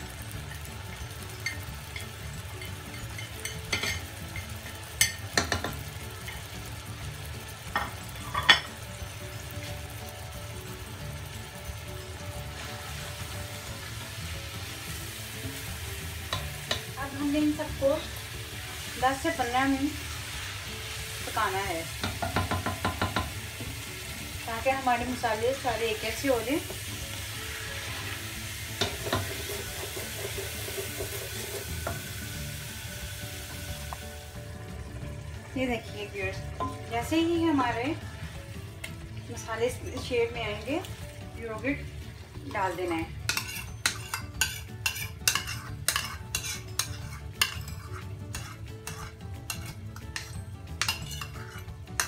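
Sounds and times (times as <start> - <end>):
masala sizzling in a pot: 0.0 - 52.0
spatula clicking against pot: 43.3 - 52.0.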